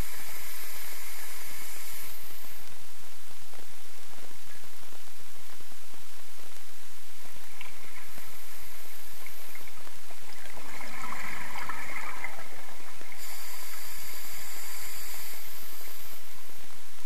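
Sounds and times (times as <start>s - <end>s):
underwater hiss: 0.0s - 2.8s, 7.4s - 17.0s
water rushing: 7.4s - 16.8s.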